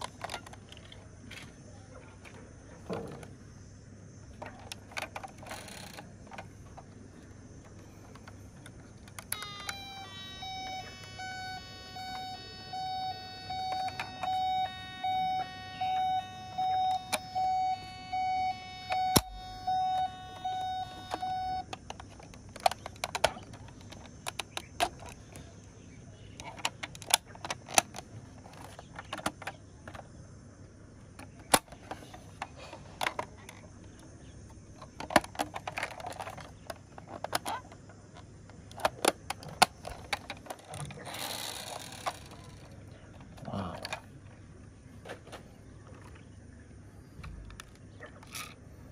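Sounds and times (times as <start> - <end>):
toy siren beeping: 9.2 - 21.8.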